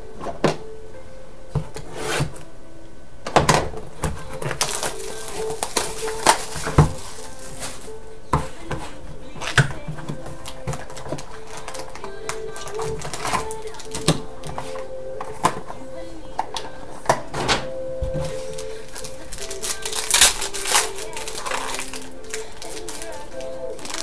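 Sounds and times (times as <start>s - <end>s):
packaging rustling: 4.0s - 15.8s, 18.0s - 24.0s.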